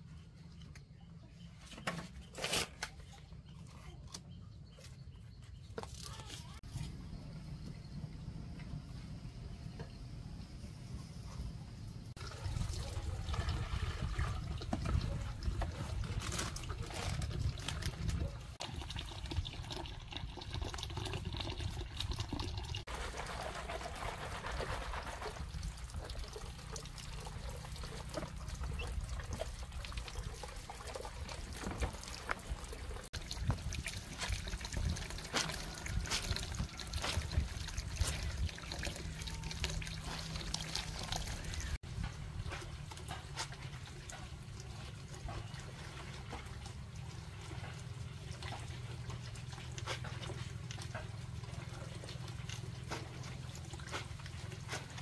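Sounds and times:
water trickling and splashing: 12.1 - 55.0.

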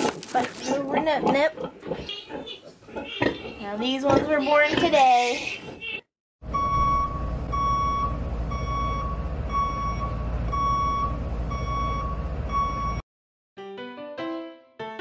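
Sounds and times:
vehicle reversing alarm beeping: 6.4 - 13.0
low engine rumble: 6.5 - 13.0.

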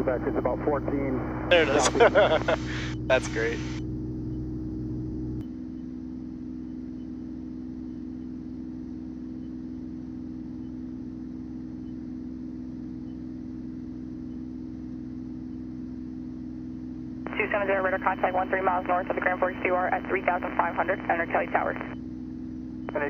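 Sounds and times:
airplane engine and propeller droning: 0.0 - 5.4, 17.3 - 23.0.

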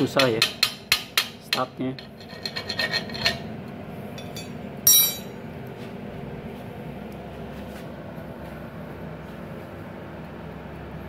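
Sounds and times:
steady low hum: 0.0 - 11.0
metallic clink with short ring: 4.2 - 5.4.

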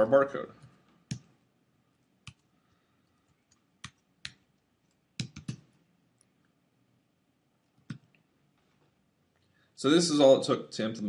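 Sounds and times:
keyboard keystrokes: 5.2 - 5.7.

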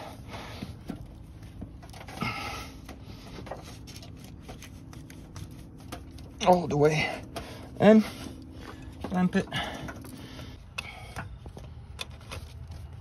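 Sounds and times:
rubber hose rubbing and scraping: 0.0 - 9.4.

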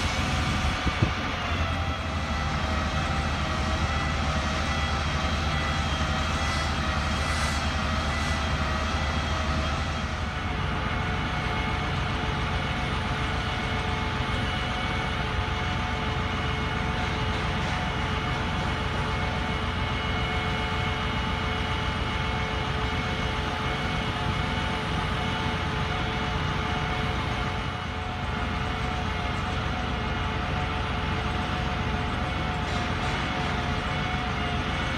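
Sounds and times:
diesel engine rumble: 0.0 - 34.9
hydraulic whine: 0.0 - 34.9.

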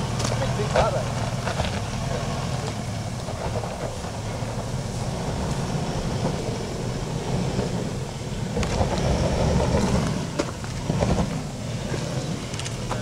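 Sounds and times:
engine working hard: 0.0 - 13.0
tyres spinning on rock and dirt: 0.0 - 13.0.

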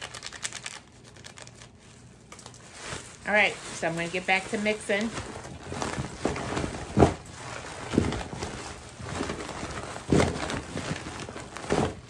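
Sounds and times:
plastic bag rustling and crinkling: 0.0 - 12.0
dull thumps of food shifting: 5.3 - 12.0.

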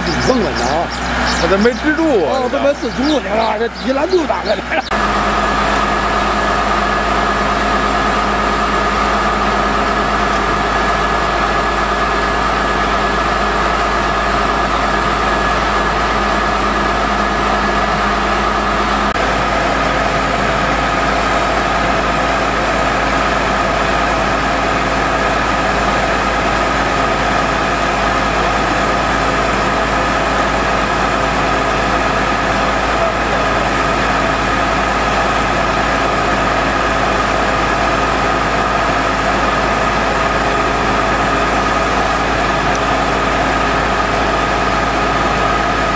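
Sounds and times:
low hum: 0.0 - 21.8
high whine: 0.0 - 44.8
drilling rig engine running: 0.0 - 45.9.

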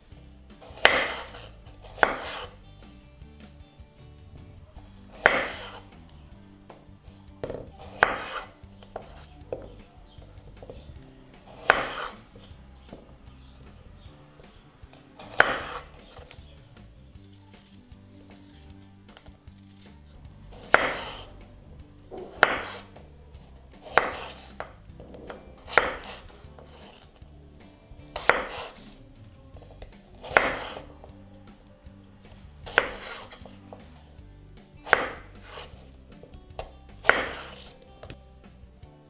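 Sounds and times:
knife cutting on cutting board: 0.6 - 2.6, 5.1 - 6.0, 7.4 - 13.1, 14.9 - 16.5, 17.4 - 21.4, 22.1 - 23.0, 23.8 - 27.2, 28.0 - 29.1, 29.7 - 31.1, 32.3 - 34.1, 34.8 - 38.2.

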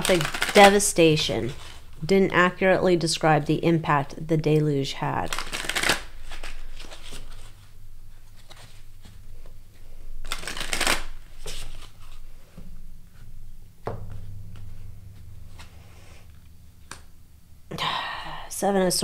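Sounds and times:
cards being shuffled: 0.0 - 2.0, 5.2 - 9.5, 10.2 - 12.4
faint low hum: 6.2 - 19.0.

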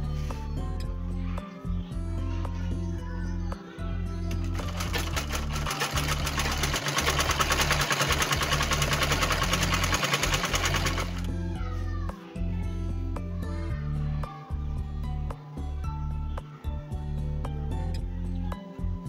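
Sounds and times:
background music: 0.0 - 19.0
sewing machine stitching: 4.3 - 11.3.

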